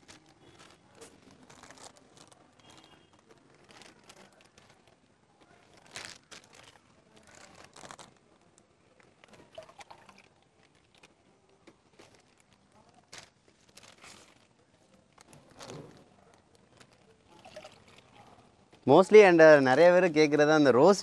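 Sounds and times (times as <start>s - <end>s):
plastic bags crinkling: 0.0s - 19.9s.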